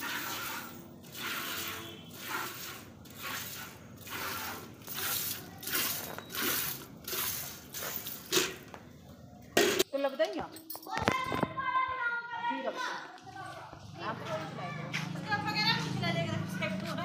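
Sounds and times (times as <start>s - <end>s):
milk squirting into metal bucket: 0.0s - 8.8s.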